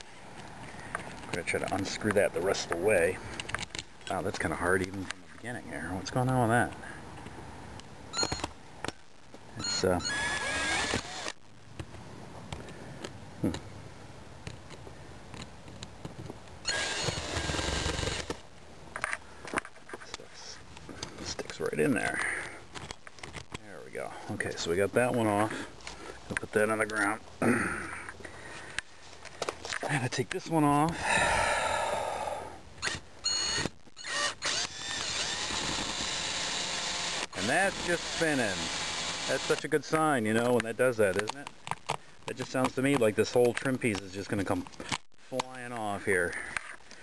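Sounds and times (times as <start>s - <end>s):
cordless screw gun running: 10.0s - 11.4s, 16.7s - 18.4s, 32.8s - 39.6s
light clicks and handling: 40.4s - 47.0s.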